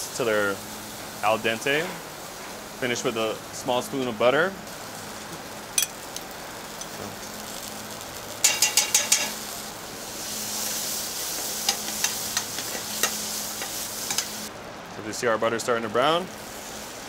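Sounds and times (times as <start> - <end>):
food sizzling in a skillet: 0.0 - 17.0
metal utensil scraping pan: 8.4 - 9.4.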